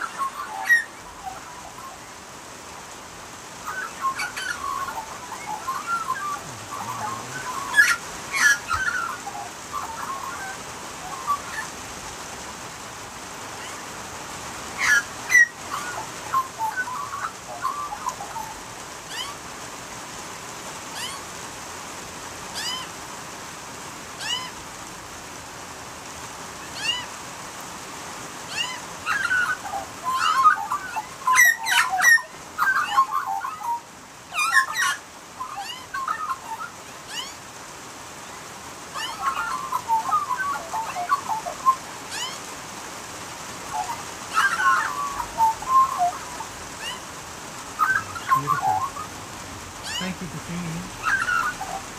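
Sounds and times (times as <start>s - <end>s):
magpies warbling: 0.0s - 2.4s, 3.2s - 14.0s, 14.6s - 19.5s, 20.9s - 21.3s, 22.5s - 23.0s, 24.2s - 24.6s, 26.6s - 27.2s, 28.5s - 37.5s, 38.2s - 51.9s
rain hissing: 0.0s - 51.9s
thin high bird chirp: 3.7s - 11.7s, 39.0s - 42.4s, 47.8s - 49.1s, 49.8s - 51.9s.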